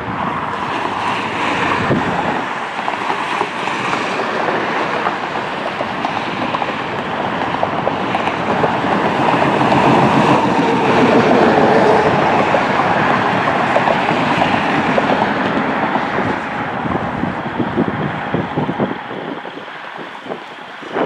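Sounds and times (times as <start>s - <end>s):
loud jet engine noise: 0.0s - 21.0s
wind buffeting microphone: 0.0s - 21.0s.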